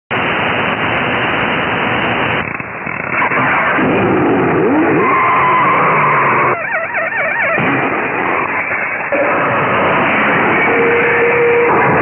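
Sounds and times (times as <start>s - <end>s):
radio static hiss: 0.1s - 3.8s
steady radio tone: 4.4s - 12.0s.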